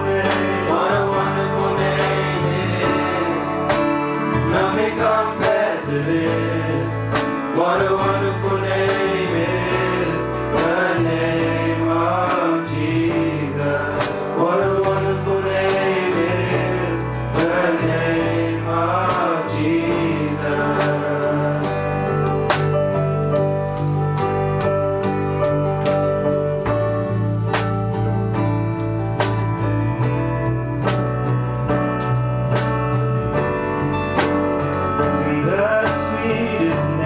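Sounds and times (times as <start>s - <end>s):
man singing: 0.0s - 22.3s, 35.0s - 37.0s
bass line: 0.0s - 37.0s
guitar: 0.0s - 37.0s.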